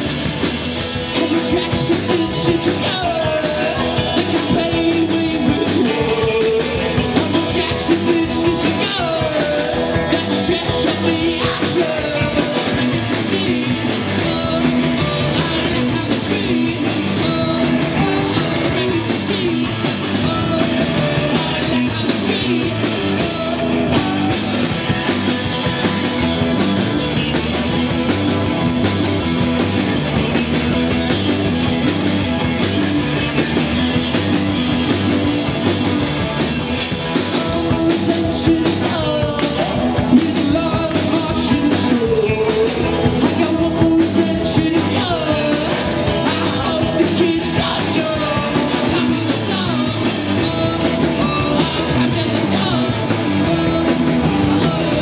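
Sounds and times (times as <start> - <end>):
live rock band playing: 0.0 - 55.0
person singing: 0.9 - 26.0, 36.8 - 55.0.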